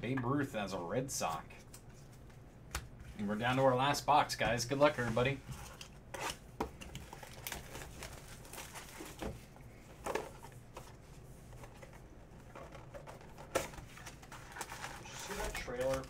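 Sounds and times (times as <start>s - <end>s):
cardboard and wrapping rustling: 6.9s - 16.0s.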